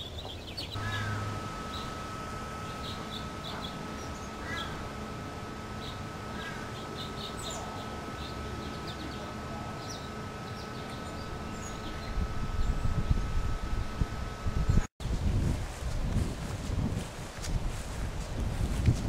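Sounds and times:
small songbirds chirping: 0.0s - 14.0s
thin steady tone: 0.8s - 14.9s
low rumbling noise: 0.8s - 19.0s.

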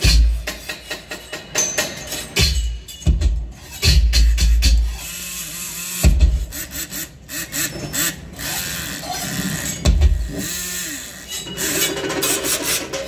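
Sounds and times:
rasping sawing: 3.6s - 13.0s.

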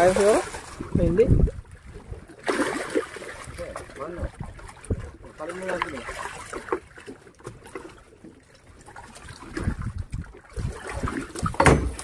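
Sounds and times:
water splashing and trickling: 0.0s - 12.0s
knocks and clatter: 11.4s - 12.0s
loud thump: 11.6s - 12.0s.

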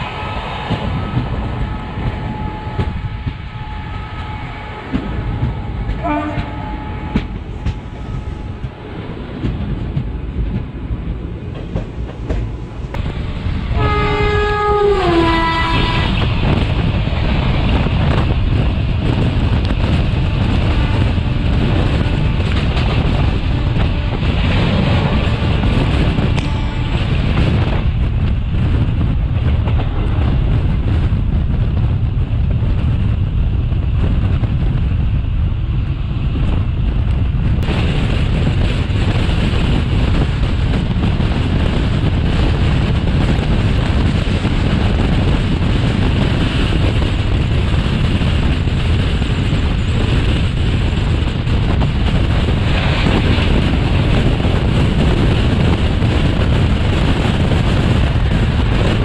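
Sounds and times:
rushing air: 0.0s - 59.0s
train wheels rumbling on rail: 0.0s - 59.0s.

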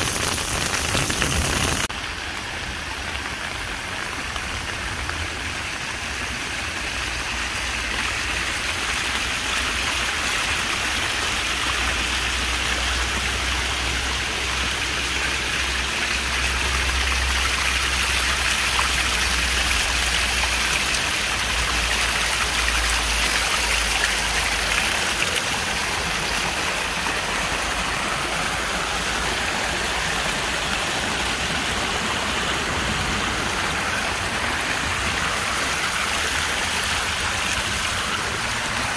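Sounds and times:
rain falling: 0.0s - 38.9s
water rushing down stone stairs: 0.0s - 38.9s.

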